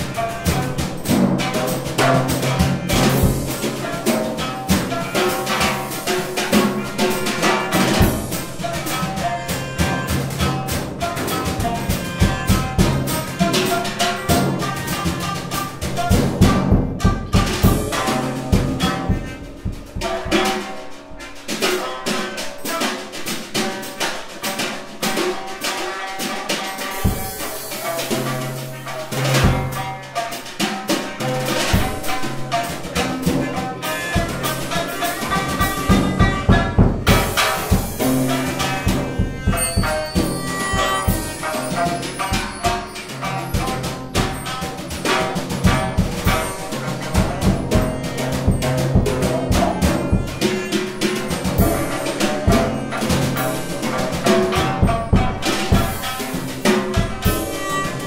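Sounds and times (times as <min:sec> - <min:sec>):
percussion music with held tones: 0:00.0 - 0:58.0.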